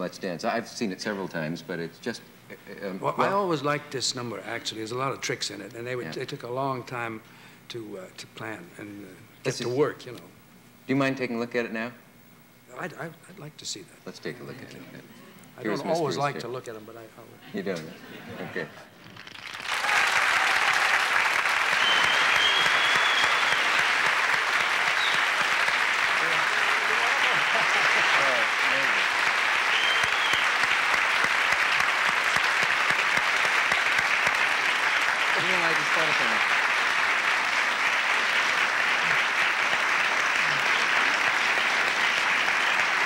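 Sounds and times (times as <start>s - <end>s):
audience applauding: 19.0s - 43.0s.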